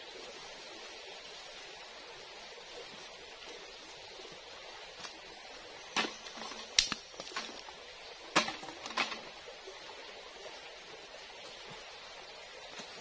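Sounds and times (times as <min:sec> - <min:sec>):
running water hiss: 0:00.0 - 0:13.0
bamboo sticks clattering: 0:05.9 - 0:07.7, 0:08.3 - 0:09.4.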